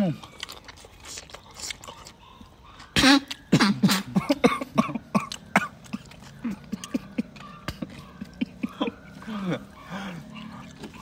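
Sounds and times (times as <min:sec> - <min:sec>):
person coughing and sputtering: 0:03.0 - 0:09.0.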